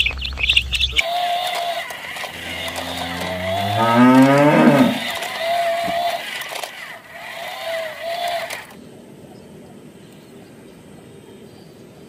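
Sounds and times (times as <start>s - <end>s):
young birds peeping: 0.0s - 1.2s, 2.0s - 6.2s
cow mooing: 2.3s - 5.1s.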